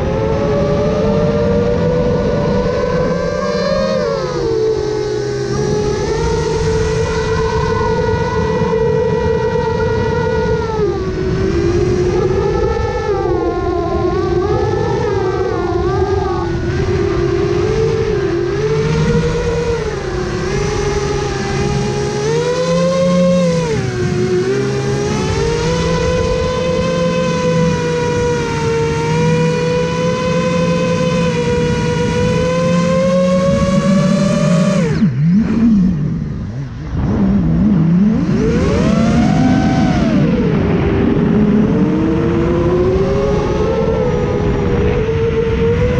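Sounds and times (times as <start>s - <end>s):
drone motors whining: 0.0s - 45.9s.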